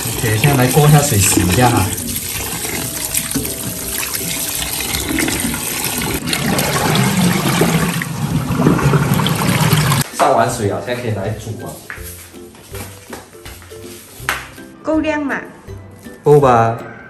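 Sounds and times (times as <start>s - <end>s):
tap water running and splashing: 0.0s - 10.0s.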